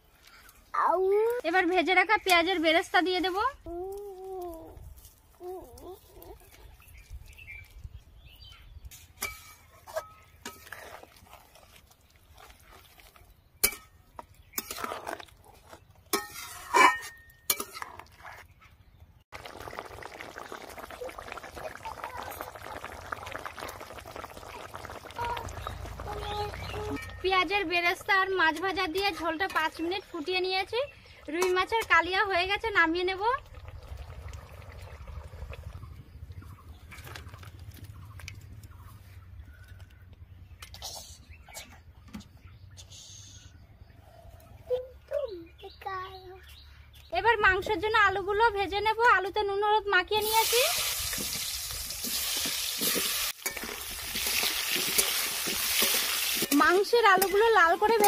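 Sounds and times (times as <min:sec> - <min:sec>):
spatula scraping a metal pot: 0:08.9 - 0:11.8, 0:14.6 - 0:18.5, 0:52.0 - 0:58.0
curry bubbling: 0:10.5 - 0:16.5, 0:19.3 - 0:38.3, 0:50.2 - 0:58.0
cookware clinking: 0:16.2 - 0:18.0.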